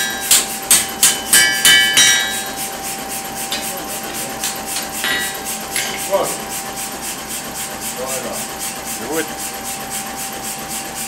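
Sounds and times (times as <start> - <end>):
hammer striking metal on anvil: 0.0 - 2.8, 3.5 - 6.4.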